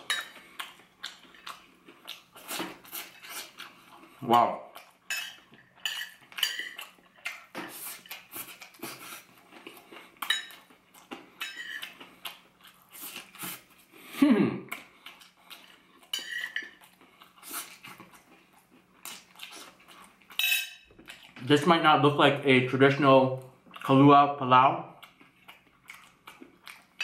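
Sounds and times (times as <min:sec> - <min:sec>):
close-up chewing: 0:00.0 - 0:13.9, 0:14.7 - 0:21.5, 0:25.0 - 0:27.0
fork clinking and scraping on plate: 0:05.1 - 0:06.9, 0:11.4 - 0:12.0, 0:16.1 - 0:16.8, 0:20.4 - 0:20.8.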